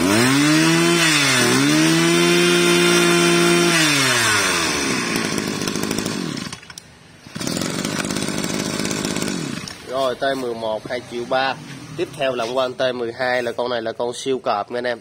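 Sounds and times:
brushcutter engine revving: 0.0s - 9.9s.

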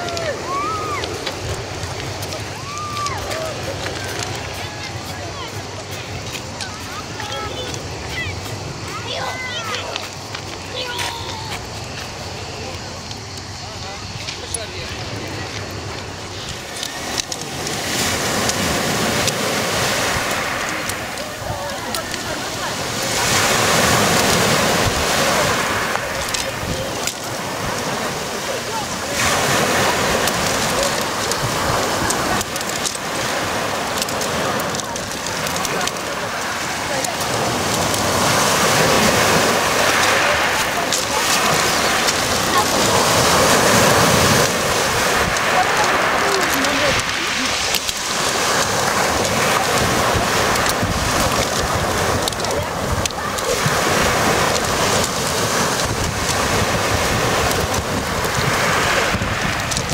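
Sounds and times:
pebbles clicking: 0.0s - 8.9s, 12.8s - 59.9s
waves washing over pebbles: 0.0s - 59.9s
wind rumbling on microphone: 0.0s - 59.9s.

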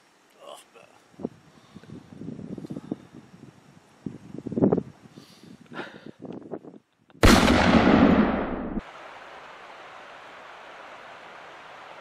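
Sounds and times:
steady hiss: 0.0s - 7.7s, 8.8s - 12.0s
rifle shot with echo: 7.2s - 8.8s.

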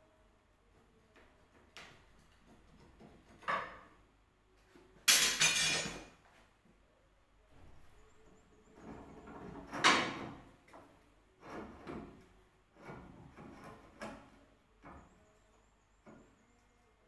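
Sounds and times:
window frame scraping: 11.4s - 14.4s.

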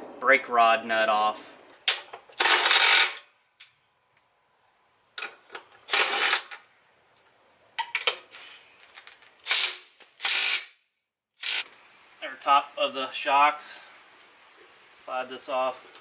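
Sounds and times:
cordless power ratchet spinning: 2.4s - 3.2s, 5.9s - 6.5s, 9.4s - 10.8s, 11.4s - 11.6s.

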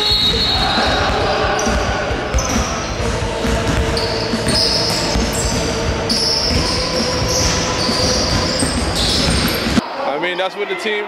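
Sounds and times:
basketball bouncing on wooden floor: 3.4s - 5.6s.

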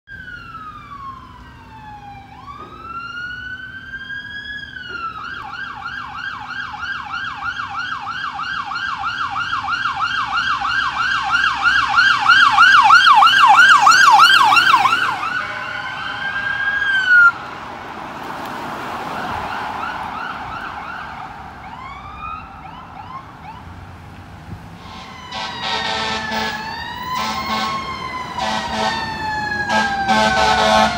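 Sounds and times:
emergency vehicle siren: 0.1s - 30.9s
rush of passing vehicle: 8.8s - 30.9s
loud horn blast: 14.8s - 16.6s, 24.8s - 30.9s
short siren chirps: 24.8s - 29.0s, 29.6s - 30.9s.

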